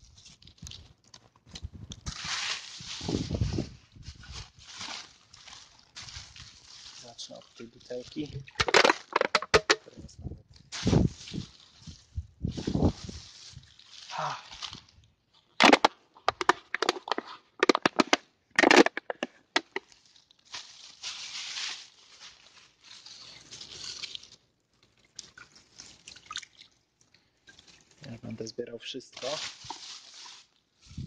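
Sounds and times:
soft rustling: 2.1s - 8.2s, 10.7s - 14.9s, 19.2s - 24.4s, 29.2s - 31.0s
plastic bottle crushing: 8.3s - 10.1s, 12.7s - 26.7s, 29.2s - 30.5s
water sloshing: 25.0s - 26.8s.

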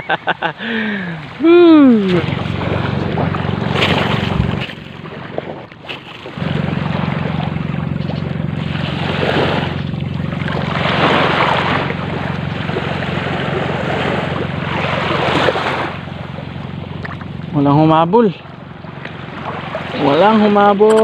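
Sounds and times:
rushing wind: 0.0s - 5.7s
motorboat engine hum: 0.0s - 21.0s
water noise: 0.0s - 21.0s.

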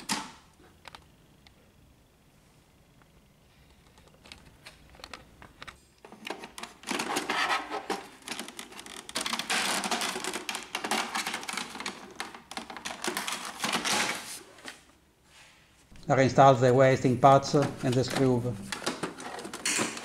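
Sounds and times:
plastic clicking and rattling: 3.8s - 14.2s, 17.5s - 20.0s.

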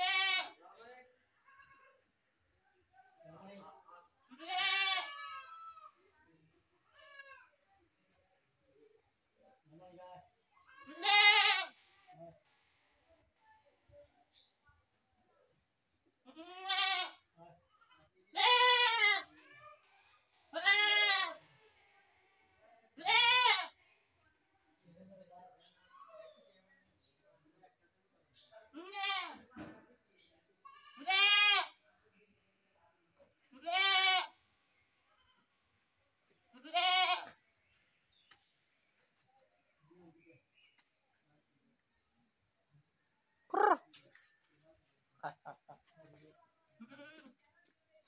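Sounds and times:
goat bleating: 0.0s - 0.6s, 4.3s - 5.9s, 6.9s - 7.5s, 10.6s - 11.8s, 16.3s - 17.2s, 17.8s - 19.8s, 20.5s - 21.4s, 23.0s - 23.8s, 28.8s - 29.4s, 30.7s - 31.8s, 33.5s - 34.4s, 36.6s - 37.4s, 43.5s - 43.8s, 46.8s - 47.4s.

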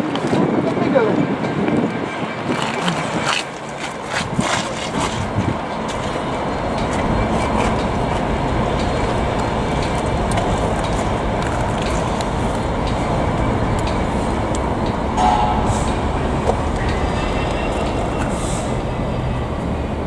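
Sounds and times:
diesel locomotive engine drone: 0.0s - 20.0s
metal clanks: 15.2s - 18.8s.

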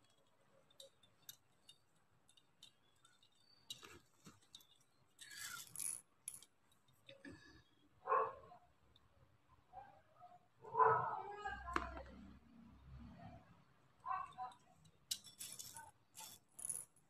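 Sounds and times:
beads clicking together: 14.4s - 17.0s.

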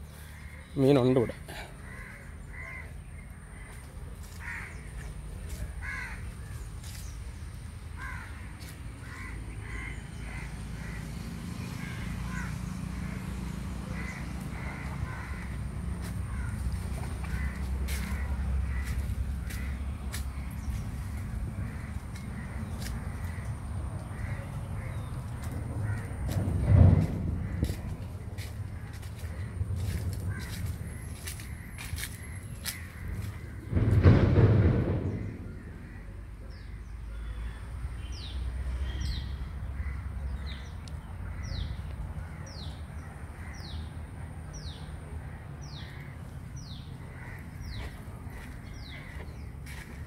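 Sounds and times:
crows cawing: 0.0s - 7.1s, 8.0s - 37.4s, 39.7s - 43.9s, 45.3s - 50.0s
low rumble: 13.8s - 36.6s.

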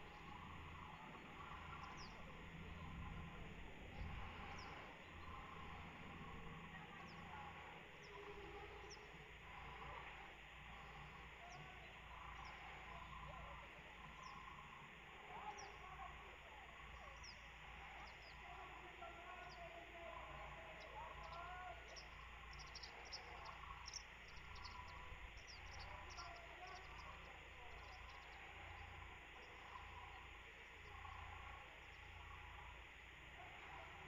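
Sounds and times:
small birds chirping: 0.0s - 34.0s
steady low rumble: 0.0s - 34.0s.

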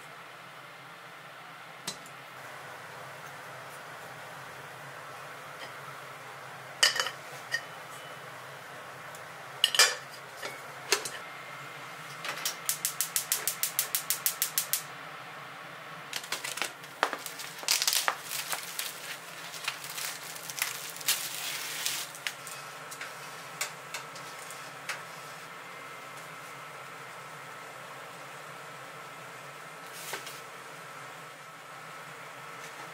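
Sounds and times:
metal cookware clinking: 6.8s - 8.1s, 9.6s - 11.2s
gas stove igniter clicking: 12.4s - 14.9s
grill rack and foil rattling: 16.1s - 23.2s.

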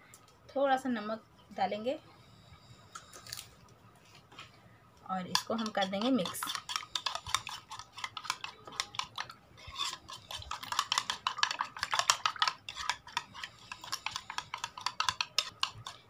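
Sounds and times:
spoon beating eggs in bowl: 5.1s - 16.0s.

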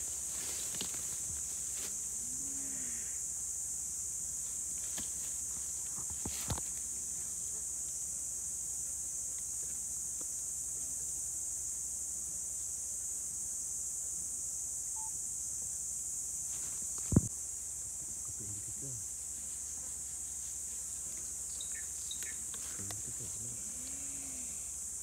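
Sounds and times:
high-pitched insect drone: 0.0s - 4.6s, 14.5s - 16.2s, 20.4s - 25.0s.

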